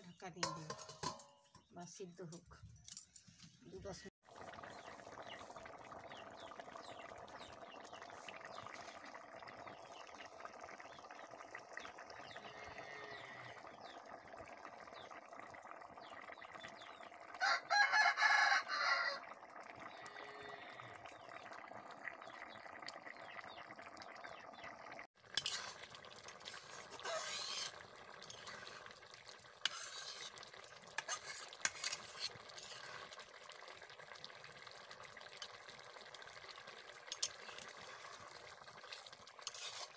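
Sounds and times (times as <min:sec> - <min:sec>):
ladle clinking and scraping pan: 0:00.3 - 0:01.7, 0:25.3 - 0:28.8, 0:29.6 - 0:33.1, 0:39.4 - 0:39.9
curry boiling and bubbling: 0:03.9 - 0:39.9
rooster crowing: 0:17.4 - 0:19.2.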